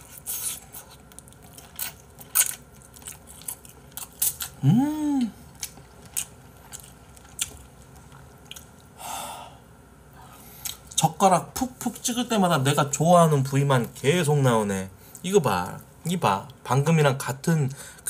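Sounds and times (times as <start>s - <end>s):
person humming: 4.6s - 5.4s.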